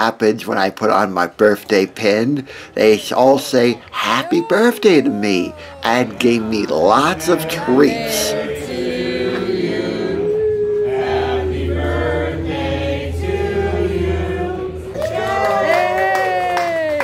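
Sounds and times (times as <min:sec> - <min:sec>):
group singing birthday song: 0:02.0 - 0:15.4.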